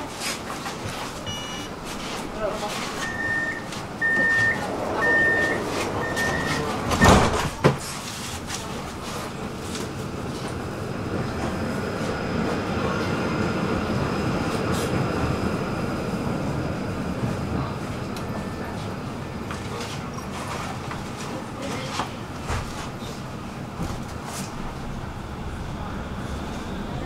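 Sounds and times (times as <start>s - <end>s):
tram rumble: 0.0s - 27.0s
door warning beeps: 1.3s - 1.8s, 3.0s - 7.5s
sliding doors shutting: 1.9s - 8.6s.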